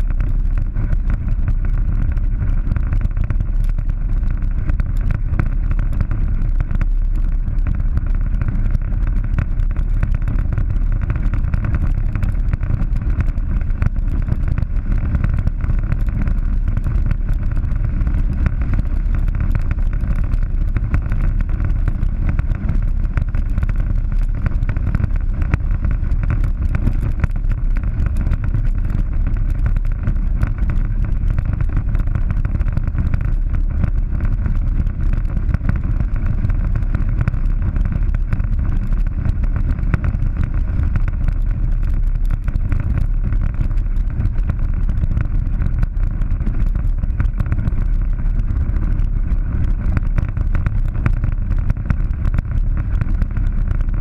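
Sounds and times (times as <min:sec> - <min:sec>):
side-by-side engine rumble: 0:00.0 - 0:54.0.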